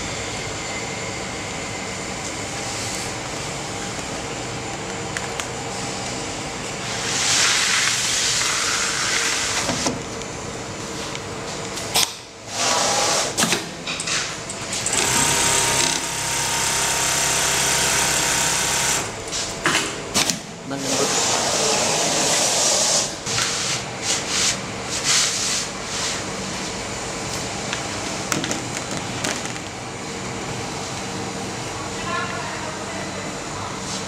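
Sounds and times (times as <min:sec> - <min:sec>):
sewing machine stitching: 0:14.7 - 0:19.1.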